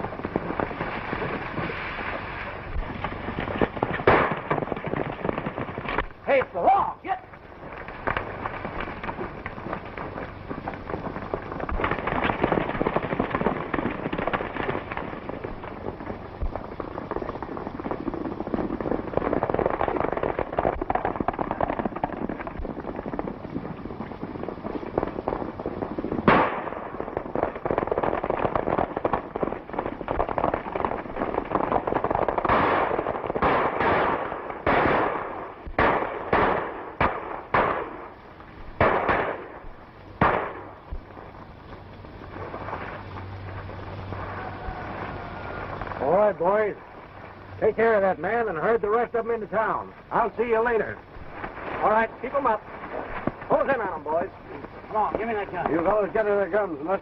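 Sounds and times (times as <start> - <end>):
gunshots: 3.7 - 6.5, 26.2 - 29.2, 32.3 - 38.1, 38.8 - 39.6, 40.2 - 40.7.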